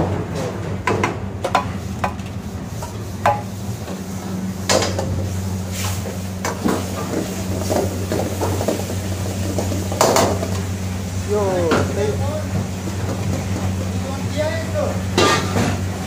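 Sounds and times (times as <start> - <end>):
steady low hum: 0.0 - 16.0
pans clattering: 15.1 - 15.8.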